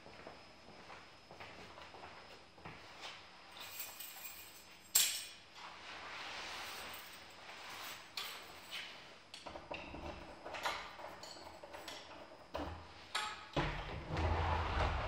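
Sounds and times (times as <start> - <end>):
metallic clicks and clinks: 3.6 - 5.4, 10.6 - 12.3.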